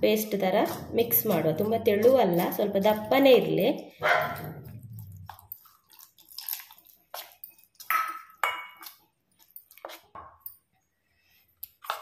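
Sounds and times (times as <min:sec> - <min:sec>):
metal spoon scraping steel bowl: 0:00.3 - 0:03.6.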